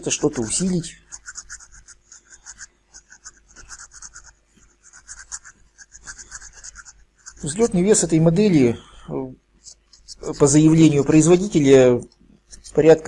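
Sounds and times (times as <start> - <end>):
plastic parts scratching and clicking: 0.0 - 4.2, 12.1 - 13.0
faint steady hum: 0.0 - 13.0.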